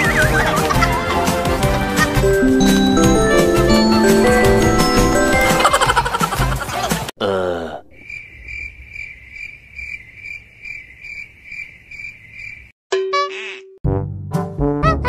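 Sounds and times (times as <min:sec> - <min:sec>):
cricket chirping: 0:07.8 - 0:12.7.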